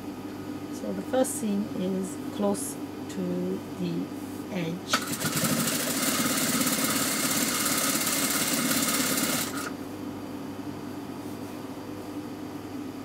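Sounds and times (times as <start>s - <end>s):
quiet steady hum: 0.0s - 5.1s
sewing machine stitching: 4.9s - 9.7s.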